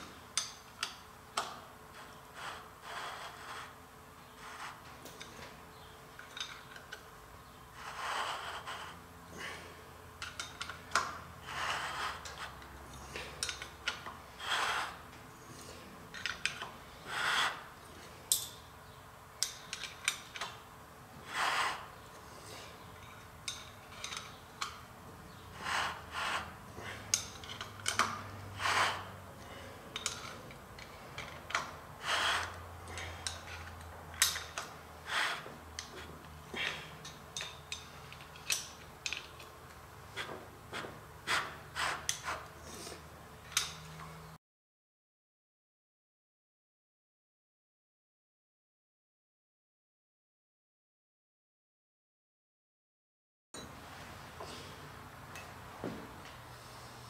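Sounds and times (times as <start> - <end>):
metallic clicks and scrapes: 0.3 - 7.1, 10.2 - 16.8, 19.4 - 20.6, 21.2 - 44.3.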